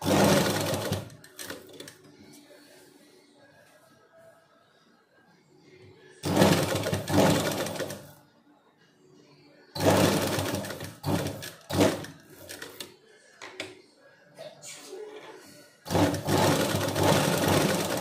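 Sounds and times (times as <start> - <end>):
sewing machine stitching: 0.0 - 2.0, 6.2 - 8.1, 9.8 - 12.9, 15.8 - 18.0.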